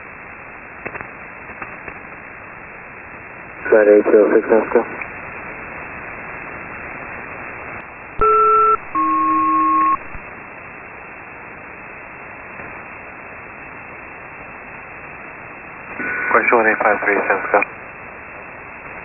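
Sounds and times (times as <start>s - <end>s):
radio static hiss: 0.8s - 10.4s, 14.6s - 19.0s
two-tone radio chord: 8.2s - 10.2s.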